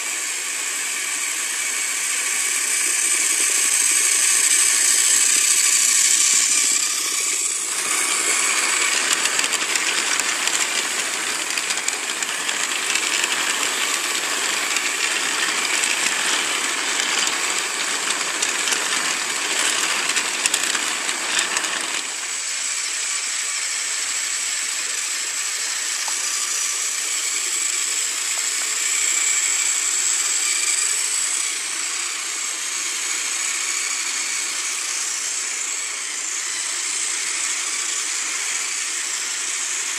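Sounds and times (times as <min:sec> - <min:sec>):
toy train motor whine: 0:00.0 - 0:39.9
plastic coaches rattling on track: 0:02.8 - 0:22.4.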